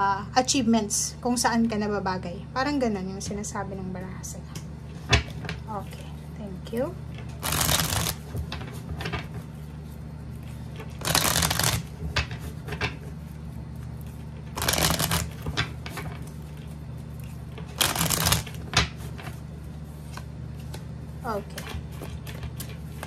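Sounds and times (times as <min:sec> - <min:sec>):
cards riffle shuffled: 0:07.4 - 0:08.2, 0:10.8 - 0:12.0, 0:14.6 - 0:15.6, 0:17.7 - 0:18.7
cards clicking and tapping: 0:07.4 - 0:08.7, 0:10.9 - 0:13.0, 0:14.6 - 0:16.0, 0:17.7 - 0:19.0.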